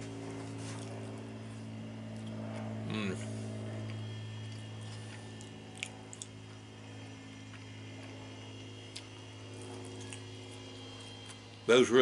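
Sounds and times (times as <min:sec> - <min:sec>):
low electrical hum: 0:00.0 - 0:12.0
man chewing: 0:03.9 - 0:06.6, 0:08.9 - 0:10.3.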